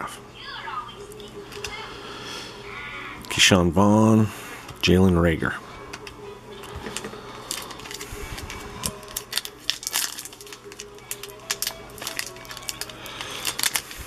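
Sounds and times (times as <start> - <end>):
foil wrapper crinkling: 6.6 - 14.0.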